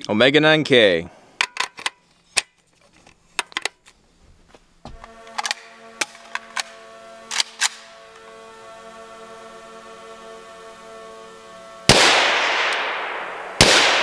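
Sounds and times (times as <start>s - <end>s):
suppressed gunshots: 11.9s - 14.0s.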